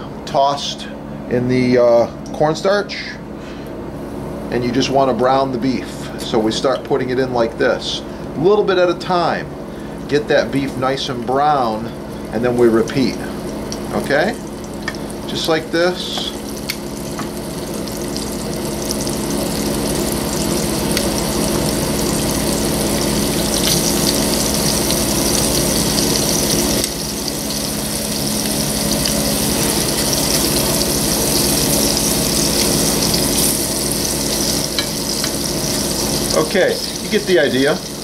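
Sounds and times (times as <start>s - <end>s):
steady low hum: 0.0s - 38.0s
meat sizzling in oil: 12.2s - 38.0s.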